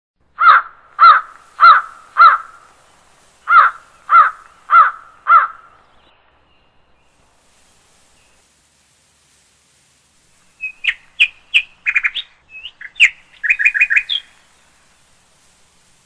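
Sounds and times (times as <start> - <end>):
crow cawing: 0.4 - 2.7, 3.5 - 5.8.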